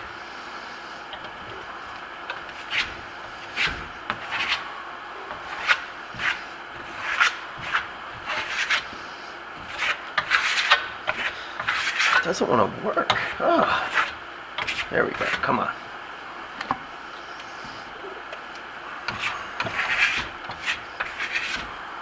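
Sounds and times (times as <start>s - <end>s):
trowel scraping plaster: 2.3s - 4.6s, 5.3s - 9.0s, 9.6s - 12.3s, 13.1s - 15.5s, 19.1s - 21.8s.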